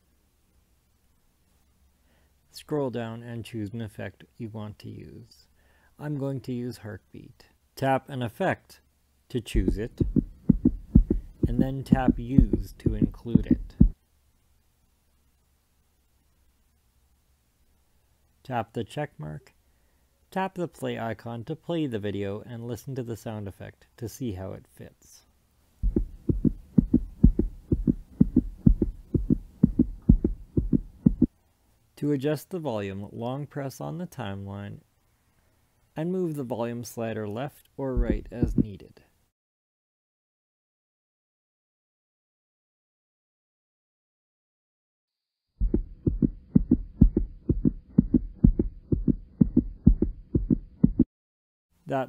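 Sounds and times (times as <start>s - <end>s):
heartbeat thumps: 9.5s - 14.0s, 25.8s - 31.3s, 38.0s - 38.8s, 45.6s - 51.1s.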